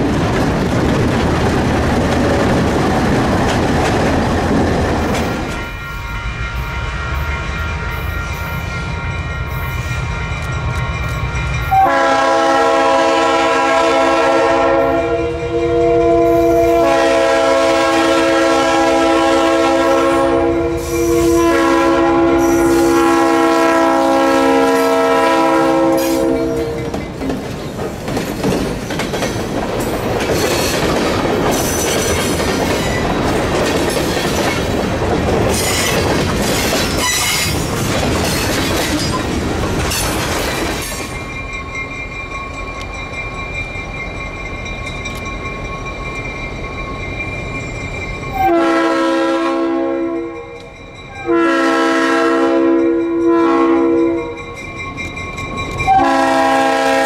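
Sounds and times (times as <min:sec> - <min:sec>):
wheel and rail clatter: 0:00.0 - 0:06.0, 0:26.6 - 0:48.4
train air horn blasts: 0:11.7 - 0:26.9, 0:48.4 - 0:50.6, 0:51.2 - 0:54.4, 0:55.9 - 0:57.0.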